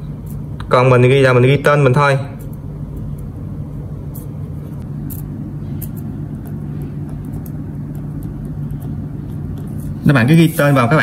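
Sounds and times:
low room hum and rumble: 0:00.0 - 0:11.0.

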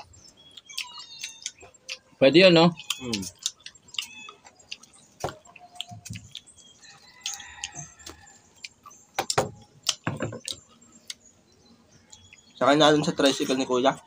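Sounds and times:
rooster crowing: 0:06.8 - 0:08.5.

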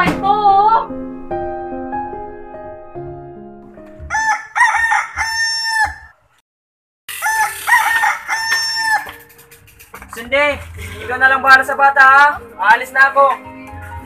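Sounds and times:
soft piano music: 0:00.0 - 0:04.3
rooster crowing: 0:04.1 - 0:06.2, 0:07.1 - 0:09.1.

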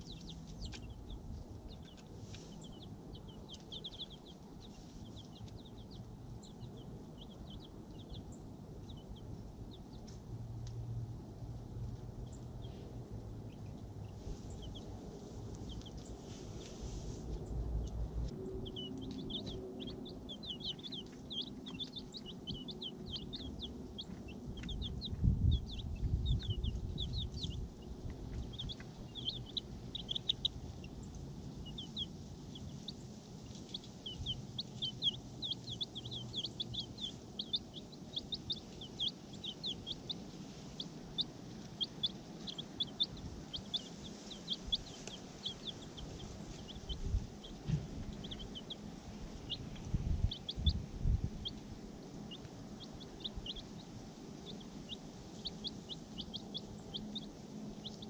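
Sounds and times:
chicks peeping: 0:00.0 - 0:58.0
low rumble: 0:17.2 - 0:33.0, 0:33.7 - 0:53.9.

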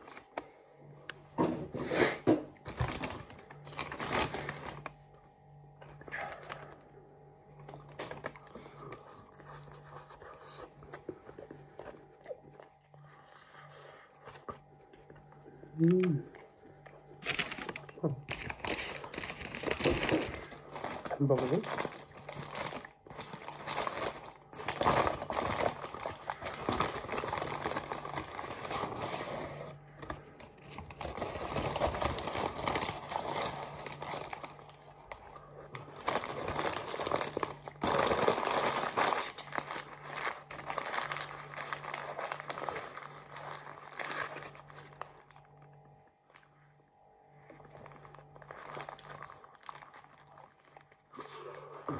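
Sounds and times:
faint low hum: 0:00.0 - 0:51.9
paper wrapper crinkling: 0:02.7 - 0:05.0, 0:17.2 - 0:45.6, 0:47.4 - 0:51.2.

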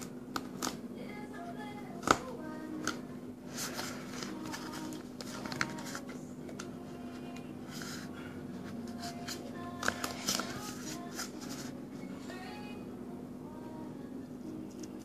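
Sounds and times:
steady low hum: 0:00.0 - 0:15.0
duct tape crinkling and rustling: 0:02.0 - 0:08.0, 0:08.7 - 0:11.7.

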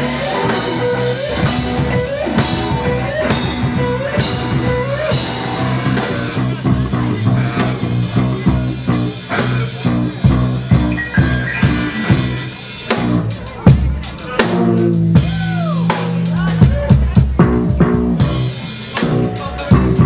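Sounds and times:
rising guitar slide: 0:00.0 - 0:13.3
live rock band playing: 0:00.0 - 0:20.0.

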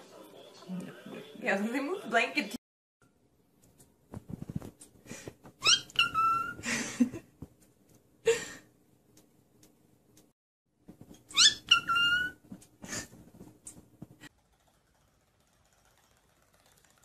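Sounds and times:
cockatiel whistling: 0:05.6 - 0:06.6, 0:11.3 - 0:12.4.

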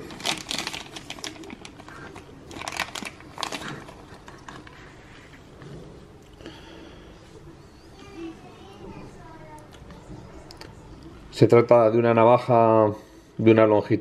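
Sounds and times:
plastic bag crinkling: 0:00.0 - 0:05.0.

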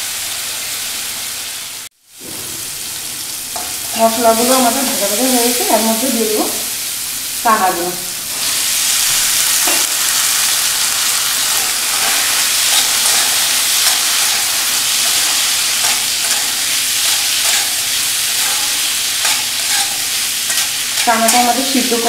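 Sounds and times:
chickpeas sizzling in oil: 0:00.0 - 0:22.0
wooden spatula scraping wok: 0:11.2 - 0:21.6.

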